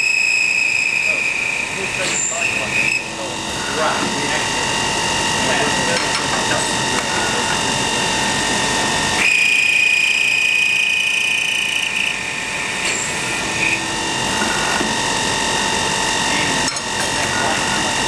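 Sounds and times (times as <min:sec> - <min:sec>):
cutter high-pitched tone on metal: 0:00.0 - 0:18.0
machine running with high whine: 0:00.0 - 0:18.0.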